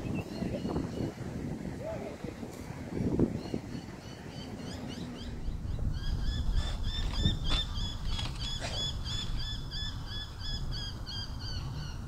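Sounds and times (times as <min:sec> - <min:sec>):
wind rumble on microphone: 0:00.0 - 0:12.0
bird chirping: 0:03.3 - 0:12.0.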